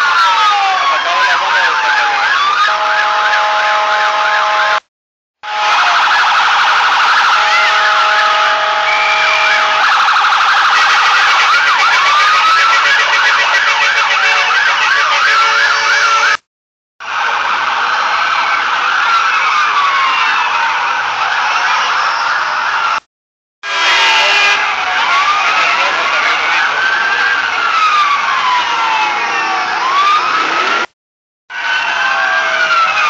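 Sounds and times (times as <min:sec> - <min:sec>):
vehicle sirens wailing: 0:00.0 - 0:16.4, 0:17.0 - 0:23.0, 0:23.7 - 0:33.0
steady horn tones: 0:02.7 - 0:06.0, 0:07.3 - 0:09.8, 0:10.8 - 0:16.5, 0:23.6 - 0:24.8.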